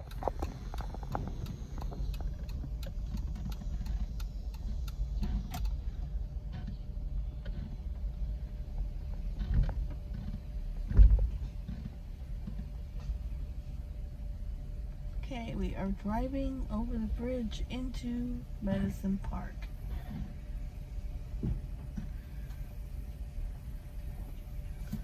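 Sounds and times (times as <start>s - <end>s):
light ticking: 0.0s - 5.8s
car road rumble from inside: 0.0s - 25.0s.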